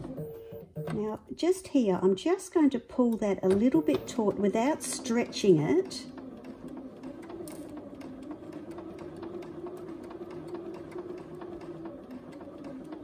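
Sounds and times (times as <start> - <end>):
sewing machine stitching: 3.1 - 13.0.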